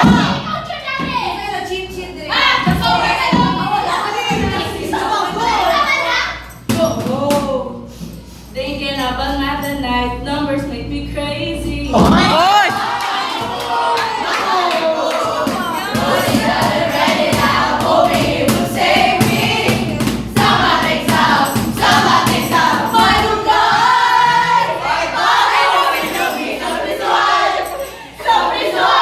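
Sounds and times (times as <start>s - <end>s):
young people singing in chorus: 12.0s - 29.0s.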